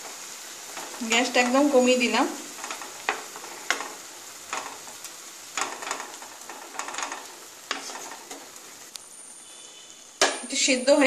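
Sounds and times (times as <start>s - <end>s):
wooden spatula scraping a pan: 0.0s - 9.9s
cooking liquid sizzling: 0.0s - 11.0s.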